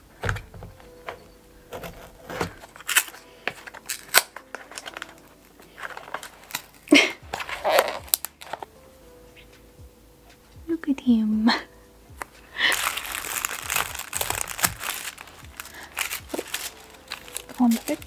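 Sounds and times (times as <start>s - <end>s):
paper crinkling and rustling: 0.2s - 8.7s, 12.2s - 18.0s.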